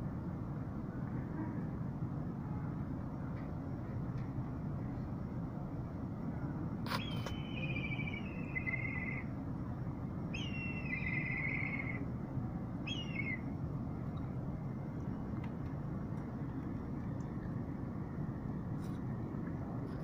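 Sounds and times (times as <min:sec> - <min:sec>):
low background rumble: 0:00.0 - 0:20.0
bird of prey whistled trills: 0:06.9 - 0:09.3, 0:10.4 - 0:12.0, 0:12.9 - 0:13.4.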